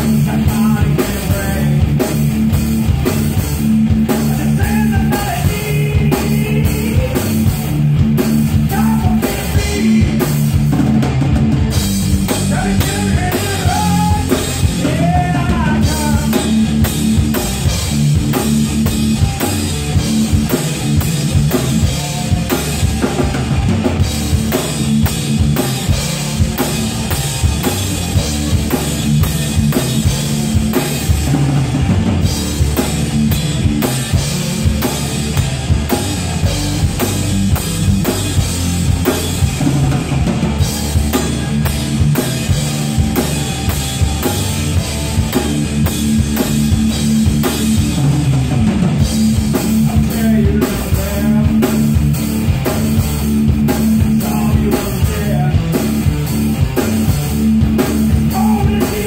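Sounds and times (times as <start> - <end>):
distorted electric guitars: 0.0 - 59.0
drum kit beat: 0.0 - 59.0.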